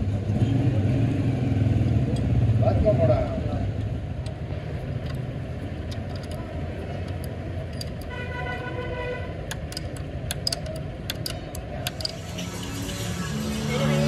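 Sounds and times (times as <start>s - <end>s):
low rumble of vehicle engines: 0.0s - 14.0s
spanner clinking on metal bolts: 5.0s - 8.2s, 9.4s - 12.4s.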